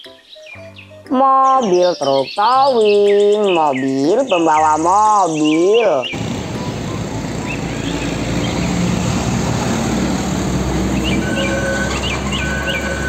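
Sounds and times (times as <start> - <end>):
birds chirping: 0.0 - 13.0
road traffic rumble: 6.0 - 13.0
truck driving by: 6.1 - 13.0.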